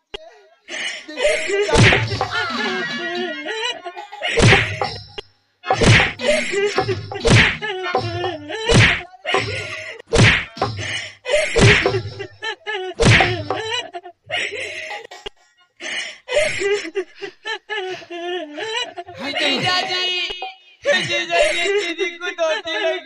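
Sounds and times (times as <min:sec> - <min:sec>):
wooden stick whacks: 0:01.8 - 0:02.4, 0:04.4 - 0:05.0, 0:05.7 - 0:07.7, 0:08.7 - 0:10.9, 0:11.6 - 0:12.0, 0:13.0 - 0:13.6.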